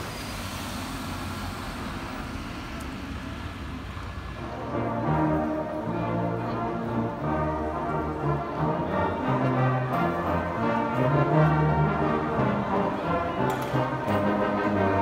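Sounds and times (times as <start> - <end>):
brass band playing slow chords: 4.4 - 15.0.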